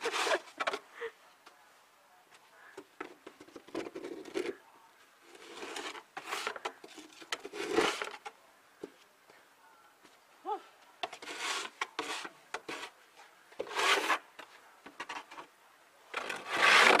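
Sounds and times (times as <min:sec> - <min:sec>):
coat rustling and scraping: 0:13.6 - 0:14.3, 0:16.2 - 0:17.0.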